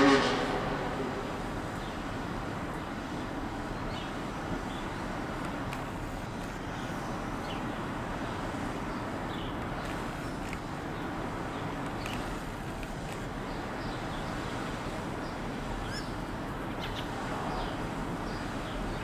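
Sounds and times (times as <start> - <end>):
car engine revving past: 0.0 - 1.2
road traffic noise: 0.0 - 19.0.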